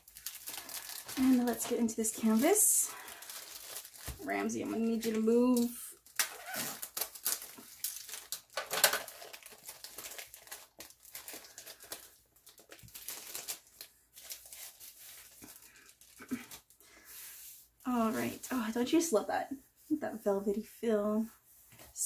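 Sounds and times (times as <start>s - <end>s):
plastic wrap crinkling: 0.0s - 16.8s.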